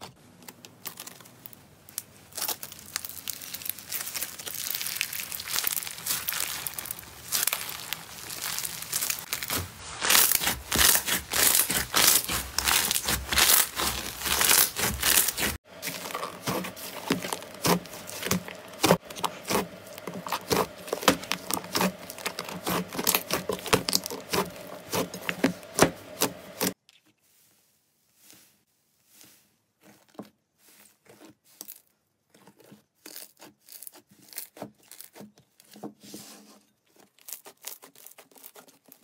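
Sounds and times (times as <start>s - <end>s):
hands squeezing crackling slime: 0.8s - 26.8s
hands kneading squishing slime: 0.8s - 36.3s.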